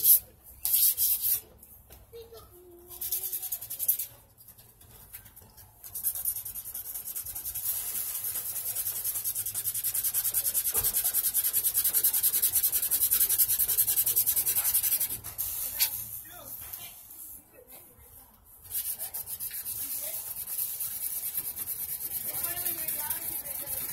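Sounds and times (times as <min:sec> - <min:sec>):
sandpaper scrubbing metal tube: 0:00.0 - 0:01.5, 0:02.9 - 0:04.2, 0:05.8 - 0:16.2, 0:18.6 - 0:23.9.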